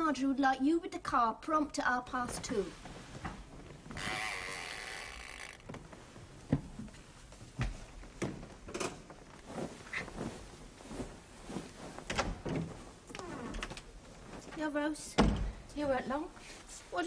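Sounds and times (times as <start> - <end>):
light knocks and thuds: 6.5 - 8.9.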